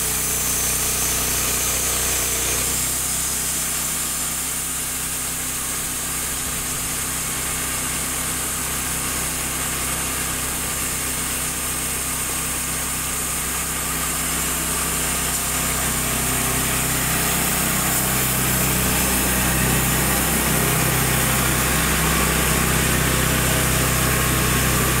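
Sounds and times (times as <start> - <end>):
band saw cutting log: 0.0 - 25.0
petrol engine running: 14.1 - 25.0.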